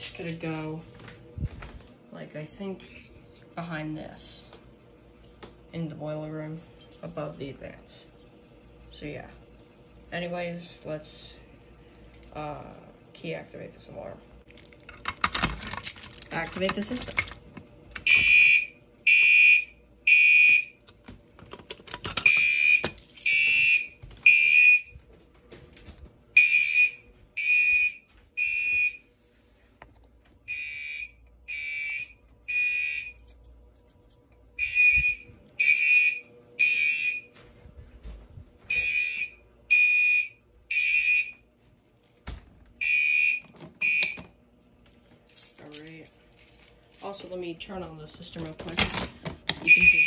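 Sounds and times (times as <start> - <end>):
fire alarm horn blasts: 18.0 - 20.8, 22.2 - 25.0, 26.4 - 29.1, 30.4 - 33.4, 34.6 - 37.4, 38.7 - 41.4, 42.8 - 44.2, 49.6 - 50.0.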